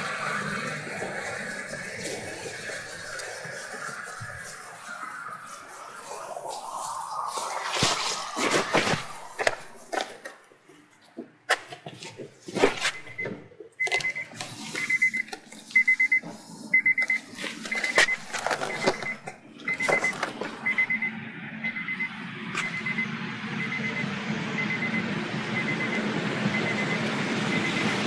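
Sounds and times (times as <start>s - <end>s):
electronic beeper beeping: 12.9s - 28.0s
low steady rumble: 14.0s - 28.0s.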